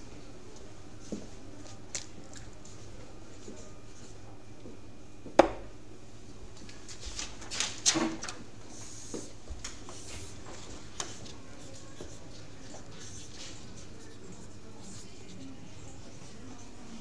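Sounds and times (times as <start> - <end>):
dart hitting dartboard: 5.4 - 5.7.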